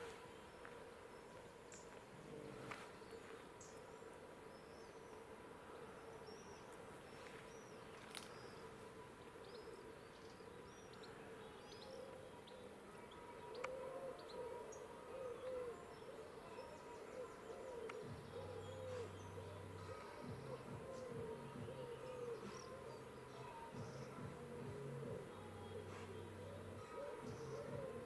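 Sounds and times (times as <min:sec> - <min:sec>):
low steady hum: 0:00.0 - 0:28.0
lower repeated bird call: 0:09.4 - 0:28.0.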